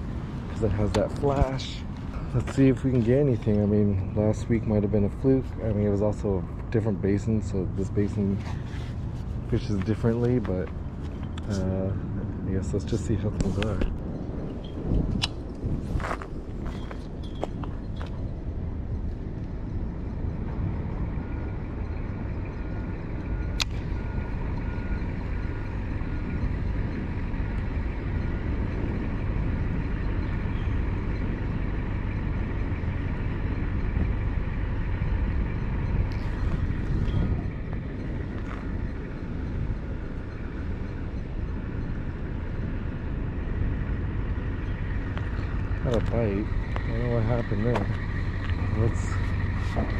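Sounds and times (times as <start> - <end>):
low outdoor rumble: 0.0 - 49.9
sharp click: 15.1 - 15.6.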